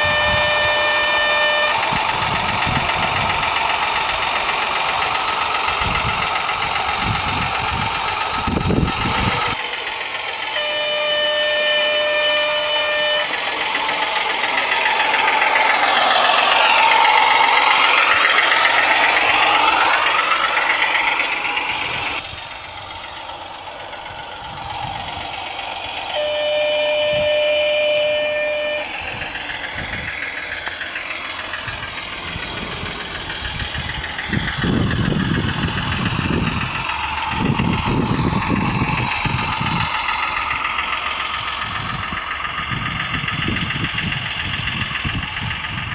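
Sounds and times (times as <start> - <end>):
model train horn: 0.0 - 2.0, 10.4 - 13.6, 26.0 - 29.0
simulated diesel engine sound: 0.0 - 45.9.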